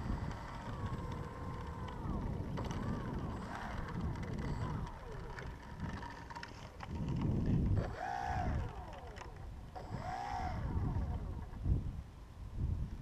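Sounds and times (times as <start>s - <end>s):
model airplane motor whining: 0.0s - 12.0s
wind rumble on microphone: 0.0s - 13.0s.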